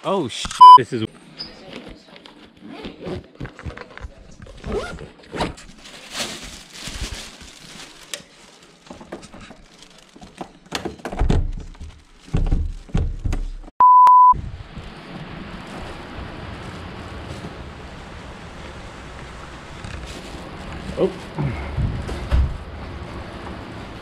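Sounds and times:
electronic beep: 0.5s - 0.8s, 13.8s - 14.4s
backpack rustling and knocking: 10.2s - 13.7s.

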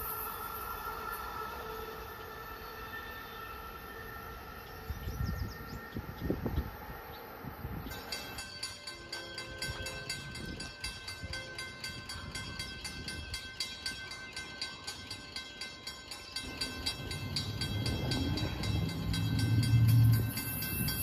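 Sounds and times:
distant train horn: 0.0s - 5.9s, 16.5s - 21.0s
steady high ringing tone: 0.0s - 21.0s.

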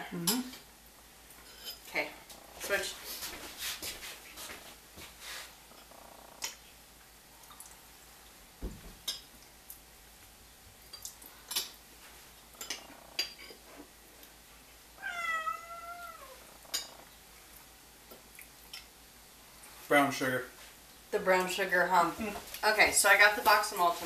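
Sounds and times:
cat meowing: 15.0s - 16.4s.

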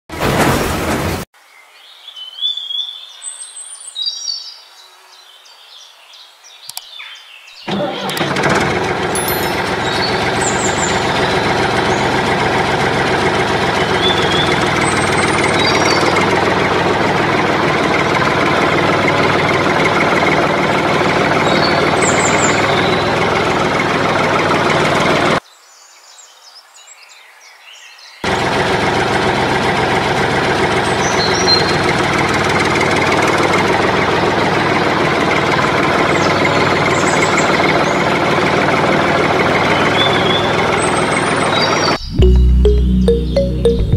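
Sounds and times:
bird chirps: 1.9s - 4.7s
tractor engine knocking: 7.7s - 25.4s, 28.2s - 42.8s.

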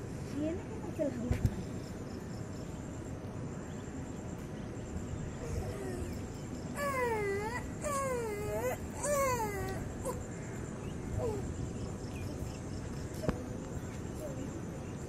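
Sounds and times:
wavering cries: 5.4s - 12.5s.

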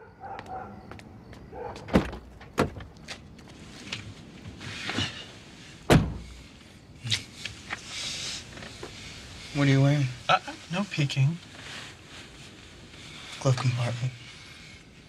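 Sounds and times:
faint background noise: 0.0s - 15.0s
car door shutting: 5.9s - 6.4s.

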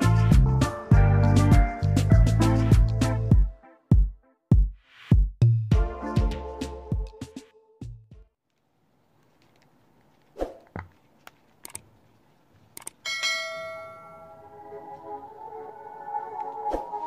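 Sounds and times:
music through subwoofer: 0.0s - 8.2s
bell-like tone: 13.1s - 15.0s.

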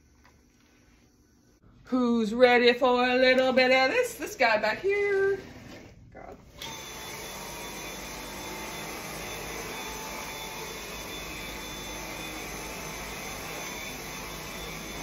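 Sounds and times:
vacuum cleaner running: 3.4s - 15.0s.

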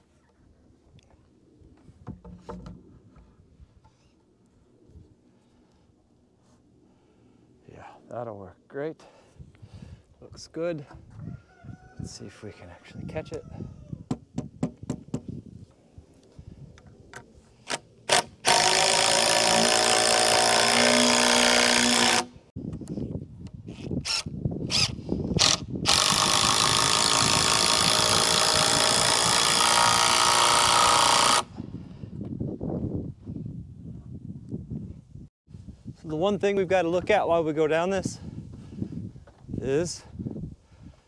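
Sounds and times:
power driver driving screws: 17.7s - 22.3s, 23.7s - 31.5s.

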